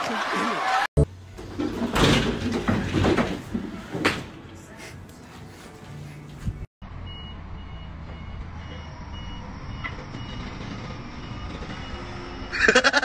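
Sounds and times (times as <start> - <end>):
reversing beeper: 7.0 - 12.6.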